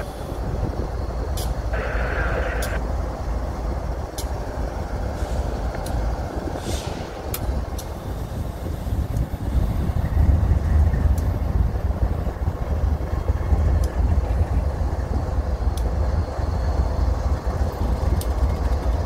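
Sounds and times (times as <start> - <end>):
train rumbling past: 0.0 - 19.0
faint clicks: 2.4 - 2.8, 15.7 - 15.9, 18.2 - 18.9.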